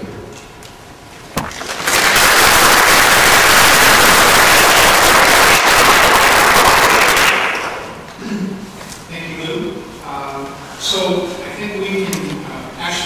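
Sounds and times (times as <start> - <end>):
sharp knock: 1.4 - 1.6
audience applauding: 1.4 - 8.0.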